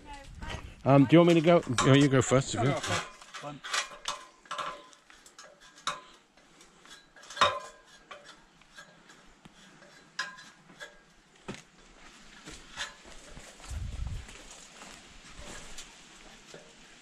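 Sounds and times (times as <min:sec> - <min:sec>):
metal ladder knocking under steps: 0:01.2 - 0:06.2, 0:07.2 - 0:09.0.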